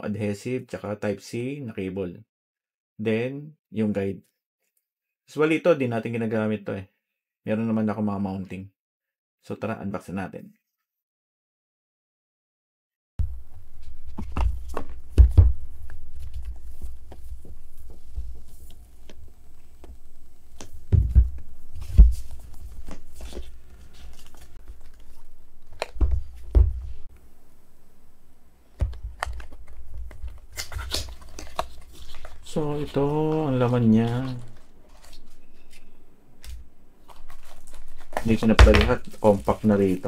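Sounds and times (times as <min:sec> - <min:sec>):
paper rustling: 0:13.6 - 0:27.1, 0:28.8 - 0:40.0
cardboard box taps and thumps: 0:20.9 - 0:22.3.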